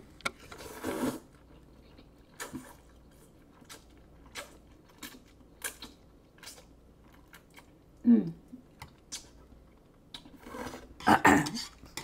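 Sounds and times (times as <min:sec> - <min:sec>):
person slurping noodles: 0:00.5 - 0:01.3.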